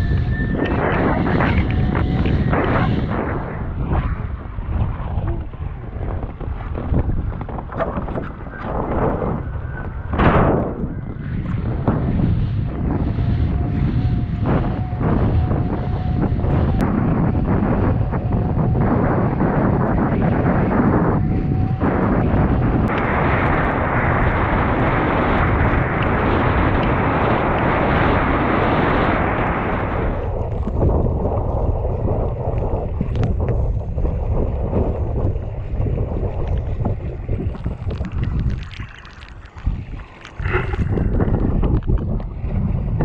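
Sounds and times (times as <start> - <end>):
wind buffeting microphone: 0.0 - 43.0
water splashes and spray: 34.5 - 43.0
water rushing: 36.4 - 42.9.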